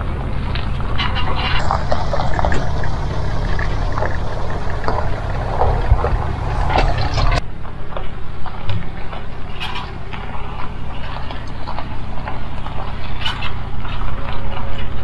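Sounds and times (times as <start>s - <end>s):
knocks and rattles: 0.0s - 7.4s
motor low rumble: 0.0s - 7.4s.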